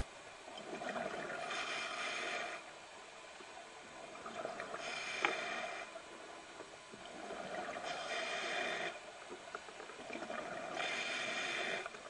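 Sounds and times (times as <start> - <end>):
diver breathing through regulator: 1.4 - 2.7, 4.7 - 6.0, 7.2 - 9.1, 10.3 - 12.0.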